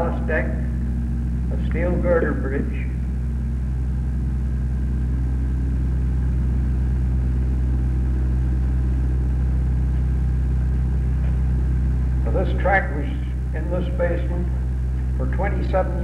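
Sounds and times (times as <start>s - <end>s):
narration voice: 0.0s - 3.0s, 12.2s - 16.0s
low hum with faint hiss: 0.0s - 16.0s.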